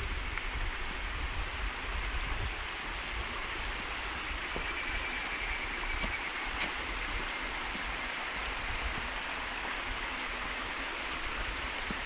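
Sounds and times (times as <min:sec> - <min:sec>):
flowing water: 0:00.0 - 0:12.0
cicada buzz: 0:04.2 - 0:09.0.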